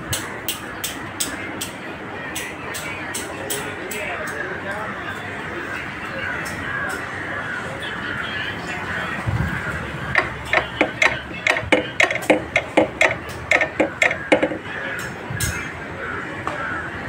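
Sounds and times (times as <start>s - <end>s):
wrench clicking: 10.2s - 14.6s.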